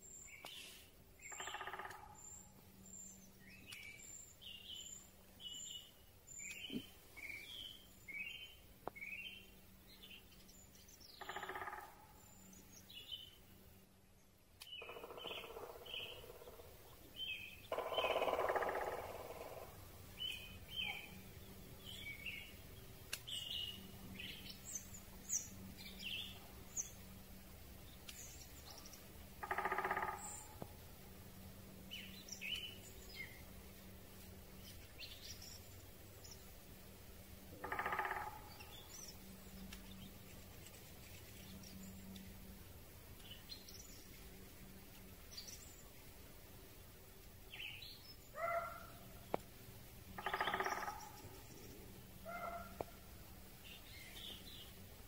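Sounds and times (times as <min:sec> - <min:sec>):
small birds chirping: 0:00.0 - 0:13.6, 0:14.2 - 0:55.0
faint steady hiss: 0:00.0 - 0:14.9, 0:18.6 - 0:55.0
woodpecker drumming on a tree: 0:01.2 - 0:02.3, 0:11.2 - 0:12.2, 0:14.6 - 0:20.0, 0:29.3 - 0:30.8, 0:37.5 - 0:42.0, 0:48.4 - 0:53.0.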